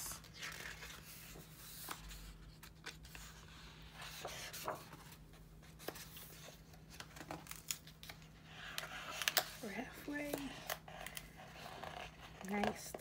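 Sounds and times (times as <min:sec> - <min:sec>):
book pages turning: 0:00.0 - 0:13.0
paper rustling with taps: 0:04.0 - 0:10.5.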